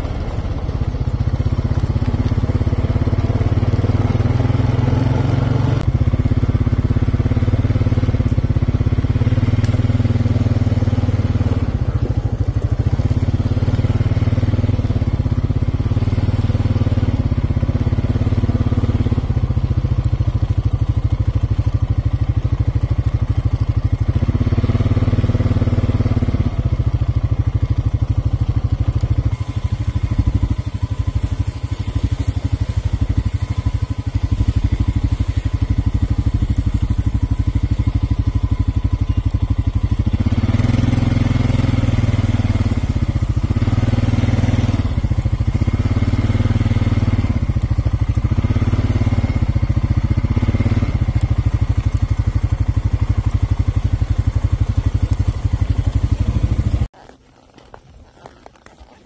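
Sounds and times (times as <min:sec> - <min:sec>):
small engine running: 0:00.0 - 0:59.0.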